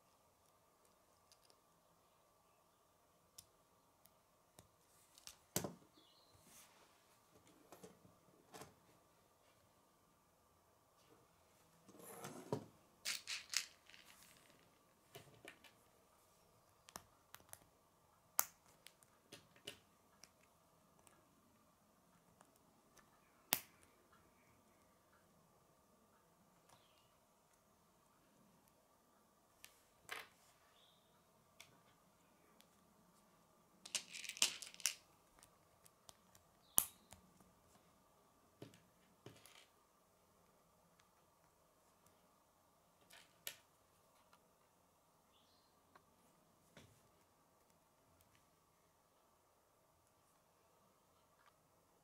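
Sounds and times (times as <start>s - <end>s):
plastic pieces clicking together: 13.1s - 14.3s, 33.8s - 35.5s.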